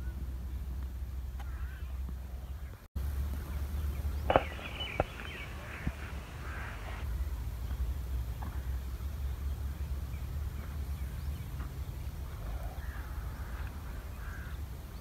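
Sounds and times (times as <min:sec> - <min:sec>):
steady low rumble: 0:00.0 - 0:15.0
faint animal calls: 0:04.3 - 0:07.0.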